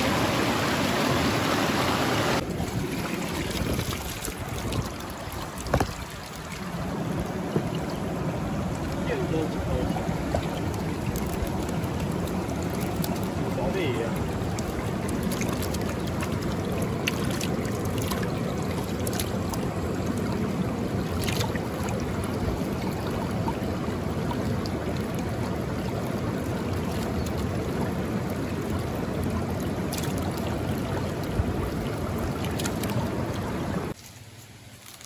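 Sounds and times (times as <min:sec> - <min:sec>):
creek water rushing: 0:00.0 - 0:35.0.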